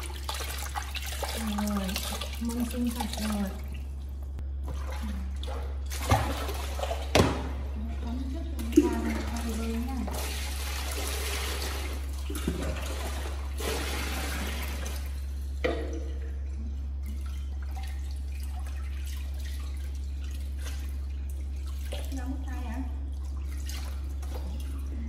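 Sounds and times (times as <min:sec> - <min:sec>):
water pouring into basin: 0:00.0 - 0:04.1
steady low hum: 0:00.0 - 0:25.0
water splashing and dripping: 0:00.0 - 0:25.0.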